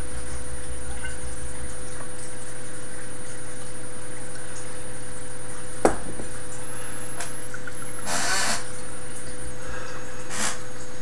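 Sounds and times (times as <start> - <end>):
electrical hum and hiss: 0.0 - 11.0
breathy hiss of air: 9.6 - 10.7.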